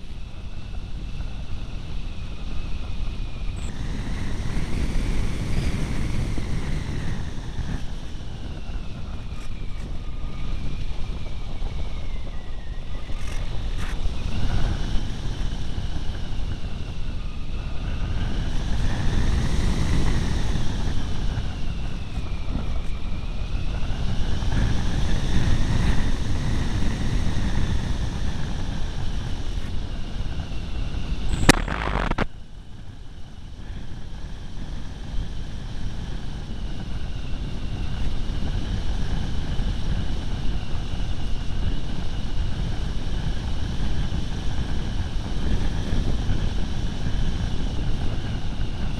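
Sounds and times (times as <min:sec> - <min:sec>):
wind rushing over camera: 0:00.0 - 0:48.9
electric motor whine: 0:29.6 - 0:32.3
sharp click: 0:31.3 - 0:32.3.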